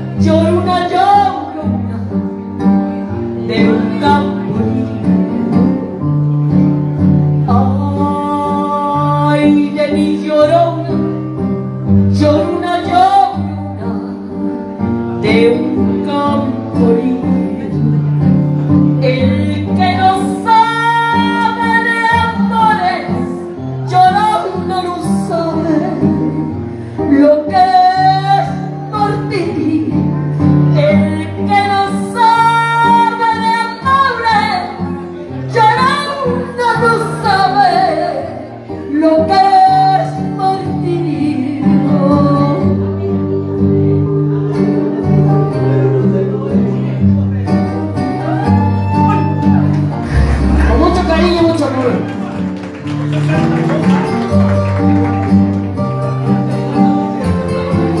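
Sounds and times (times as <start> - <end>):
woman singing into microphone: 0.0 - 2.2, 3.3 - 5.7, 7.4 - 11.2, 12.1 - 18.2, 18.9 - 47.0
karaoke backing track with guitar: 0.0 - 58.0.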